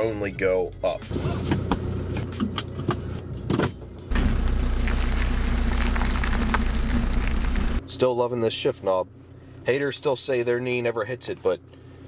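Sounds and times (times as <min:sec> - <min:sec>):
diesel engine exhaust drone: 0:00.7 - 0:10.2, 0:11.4 - 0:12.0.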